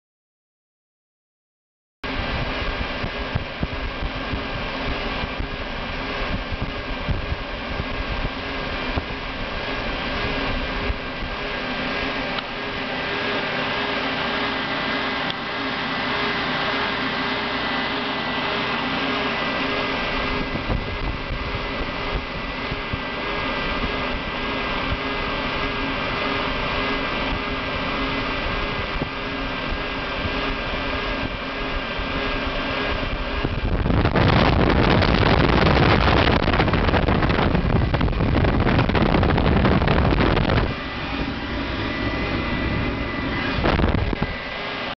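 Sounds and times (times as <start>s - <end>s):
wind buffeting microphone: 2.1s - 12.3s, 20.0s - 44.5s
hot-air blower hiss and whine: 2.1s - 44.9s.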